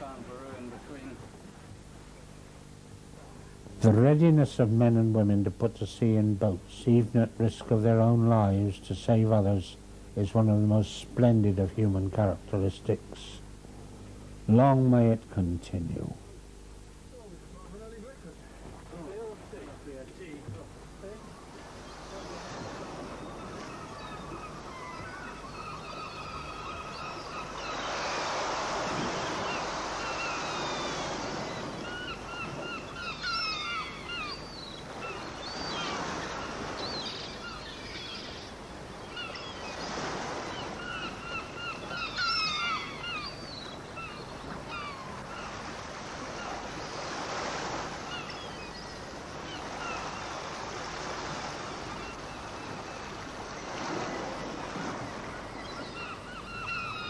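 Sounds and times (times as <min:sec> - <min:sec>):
birds calling: 0:14.5 - 0:57.0
sea water washing in swells: 0:20.8 - 0:57.0.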